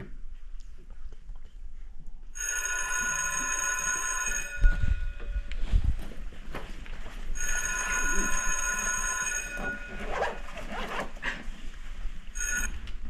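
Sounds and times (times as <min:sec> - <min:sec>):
electric bell ringing: 0:02.4 - 0:05.5, 0:07.4 - 0:10.4, 0:12.4 - 0:12.8
rustling and shuffling: 0:03.0 - 0:13.0.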